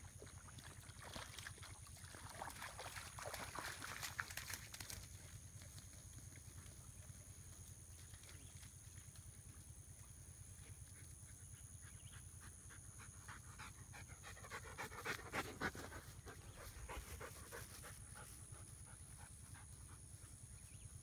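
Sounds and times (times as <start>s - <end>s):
dogs panting: 10.6s - 21.0s.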